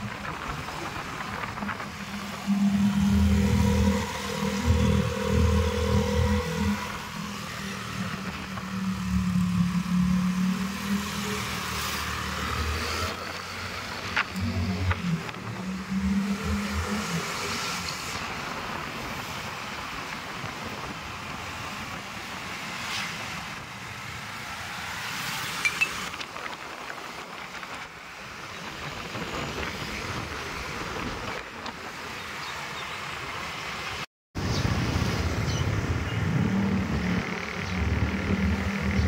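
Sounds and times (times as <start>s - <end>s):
low engine hum: 0.0s - 19.0s, 34.5s - 39.0s
road and wind noise: 0.0s - 39.0s.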